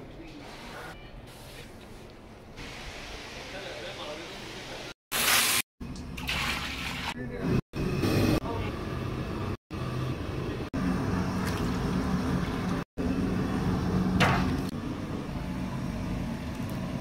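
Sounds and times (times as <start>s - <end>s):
low machine hum: 7.8s - 17.0s.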